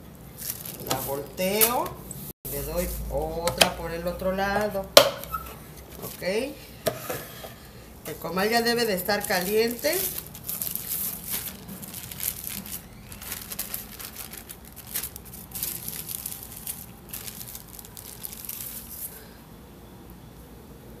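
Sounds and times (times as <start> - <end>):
plastic sheets crinkling: 0.3 - 1.9, 2.6 - 6.4, 8.1 - 19.2.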